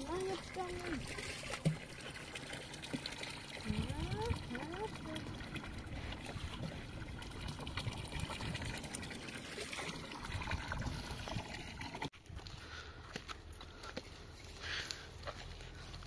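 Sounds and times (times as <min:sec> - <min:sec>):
water splashing into a trough: 0:00.0 - 0:12.1.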